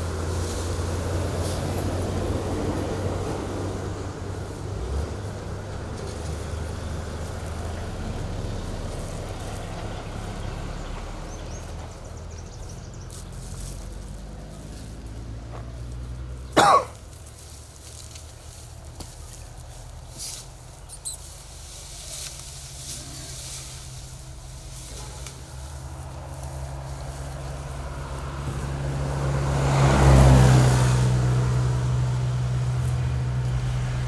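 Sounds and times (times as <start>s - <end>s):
vehicle engine idling: 0.0s - 34.0s.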